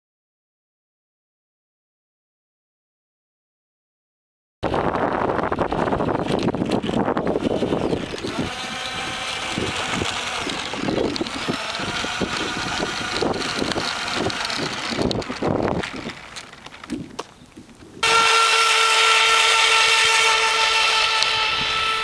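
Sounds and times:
electric ducted fans whining: 4.6s - 22.0s
wind buffeting microphone: 4.6s - 22.0s.

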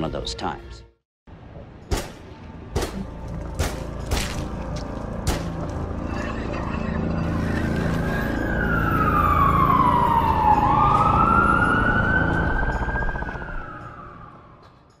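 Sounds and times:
low rumbling music: 0.0s - 15.0s
siren-like wail sliding in pitch: 7.5s - 14.7s.

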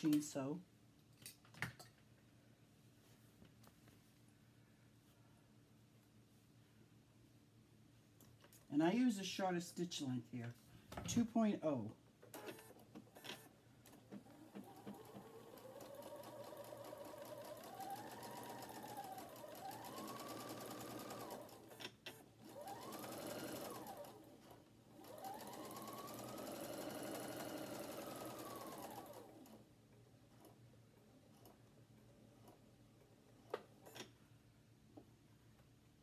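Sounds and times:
sewing machine motor whine: 14.2s - 21.8s, 22.4s - 29.6s.

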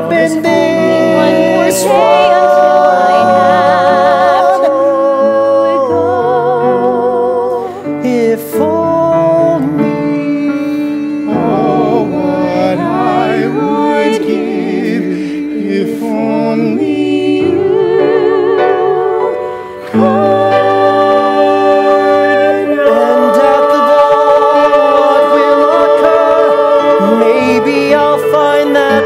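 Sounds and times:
sustained accompaniment: 0.0s - 7.6s, 8.6s - 29.0s
vocal quartet singing in harmony: 0.0s - 29.0s.

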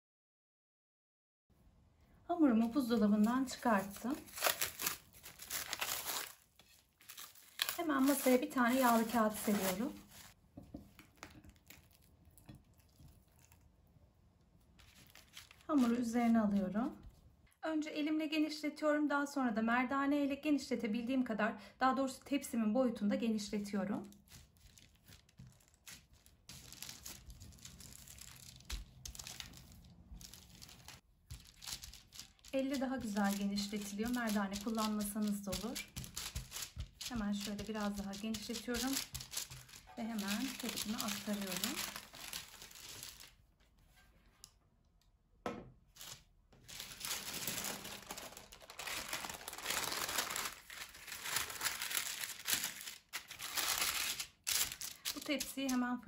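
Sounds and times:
parchment paper crinkling: 2.6s - 13.6s, 14.6s - 17.2s, 24.0s - 43.7s, 46.0s - 55.8s.

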